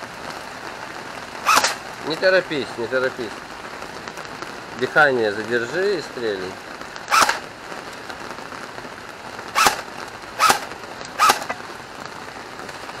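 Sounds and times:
air rifle shots: 1.4s - 1.8s, 7.1s - 7.4s, 9.5s - 11.6s.

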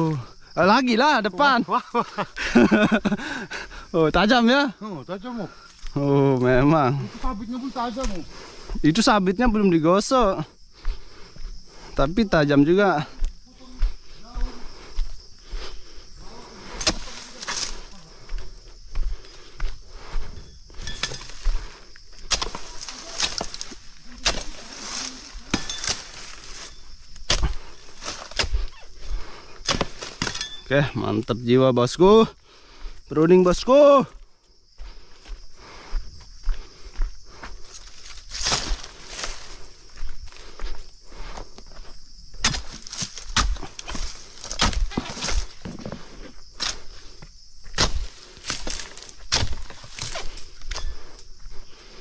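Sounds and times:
crunching in dry palm fronds: 16.7s - 18.3s, 21.0s - 28.6s, 37.6s - 40.5s, 42.1s - 47.0s, 47.8s - 51.0s
leafy rustling: 22.4s - 26.9s.

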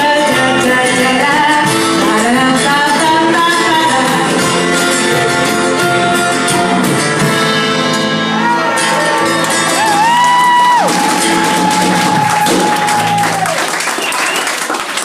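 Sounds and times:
woman singing: 0.0s - 5.4s
drum kit: 0.0s - 13.5s
guitar: 0.0s - 15.0s.

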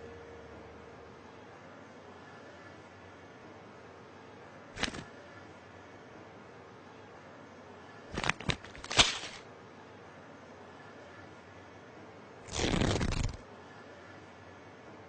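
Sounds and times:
short crackle: 4.8s - 5.1s, 8.2s - 9.4s, 12.5s - 13.4s
seeds rattling in paper packet: 8.1s - 9.4s.

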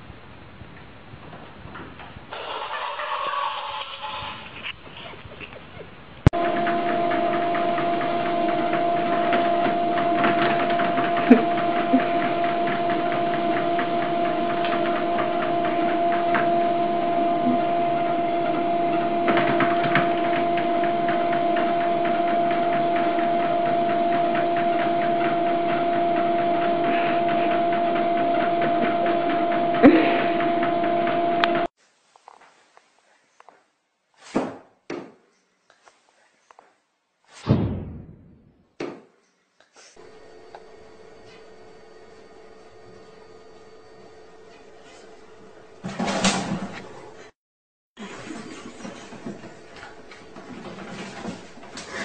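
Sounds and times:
mechanical whirring hum: 6.2s - 31.7s, 40.0s - 47.3s, 48.0s - 52.0s.

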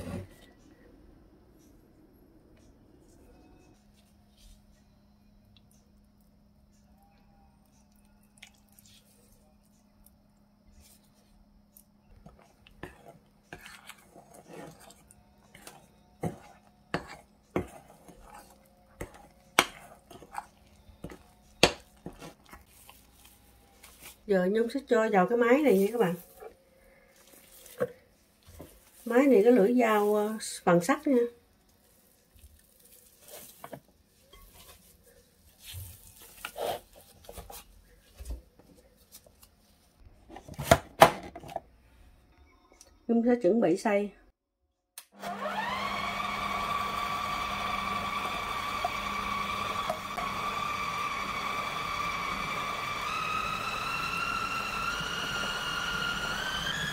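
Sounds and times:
batter squelching: 10.8s - 40.1s
utensil scraping glass bowl: 12.8s - 23.0s.

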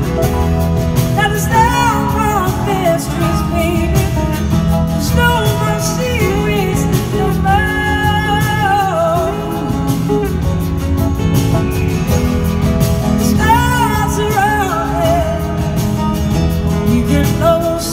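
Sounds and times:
live band playing soul-blues: 0.0s - 17.9s.

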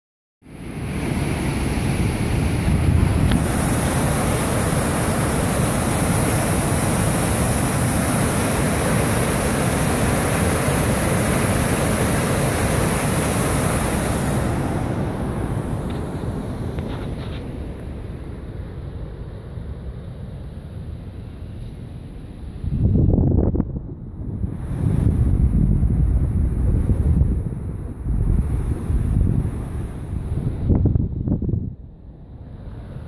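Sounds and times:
water rushing through dam gates: 0.6s - 18.1s.

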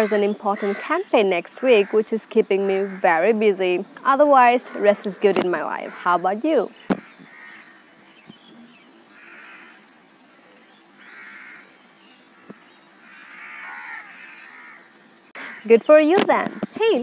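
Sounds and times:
steady high hiss: 0.0s - 17.0s
faint crow caws: 2.7s - 3.2s, 6.9s - 8.0s, 9.1s - 15.8s.

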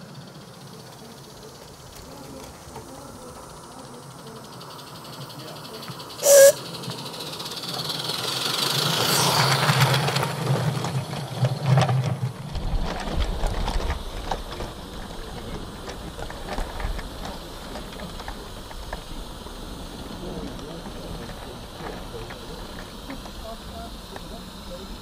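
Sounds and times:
rail wagons rumbling and clattering: 0.0s - 25.0s
steam locomotive running: 0.0s - 25.0s
steam locomotive whistle: 6.2s - 6.7s.

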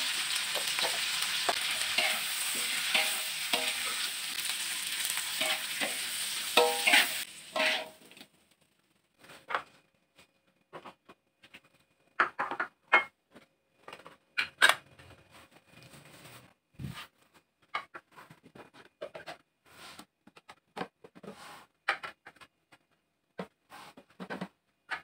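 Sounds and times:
rice paddle scraping a pot: 1.6s - 4.1s, 6.6s - 8.0s
dishes scraping: 1.8s - 4.0s, 6.6s - 8.0s
dishes clinking on a counter: 12.2s - 13.2s.

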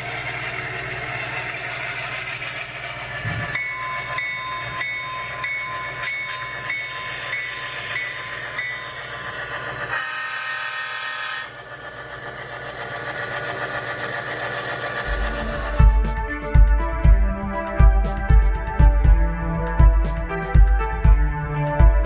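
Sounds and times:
diesel engine rumble: 0.0s - 6.8s, 11.5s - 22.0s
locomotive bell ringing: 2.9s - 10.0s.

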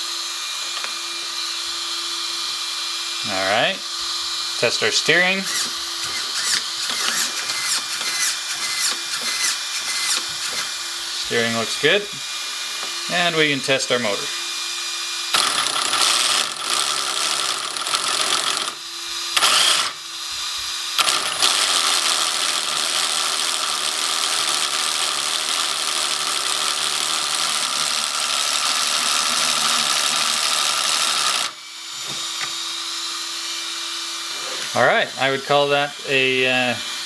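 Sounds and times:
small cooling fan whining: 0.0s - 22.5s
electric motor revving: 0.0s - 37.0s.

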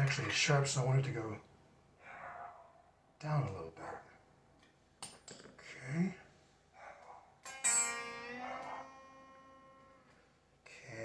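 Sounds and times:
electric guitar note ringing: 7.4s - 10.5s.

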